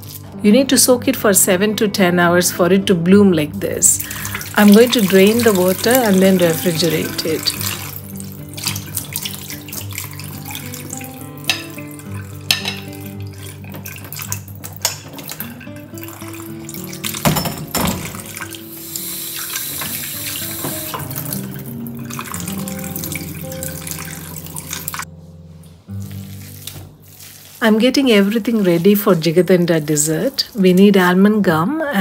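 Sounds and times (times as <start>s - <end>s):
background music sustained notes: 0.0s - 32.0s
water pouring: 3.9s - 25.1s, 25.9s - 31.0s
water splashing into sink: 4.0s - 25.1s
bowl clinking: 8.6s - 18.6s.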